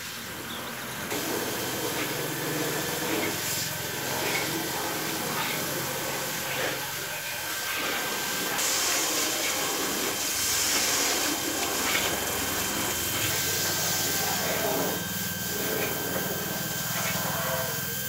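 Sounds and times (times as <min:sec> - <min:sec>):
hose water spraying on car: 0:01.0 - 0:17.2.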